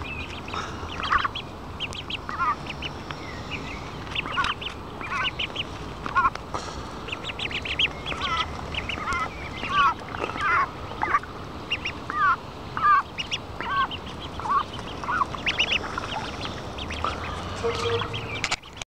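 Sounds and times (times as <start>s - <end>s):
ducklings peeping: 0.0s - 18.8s.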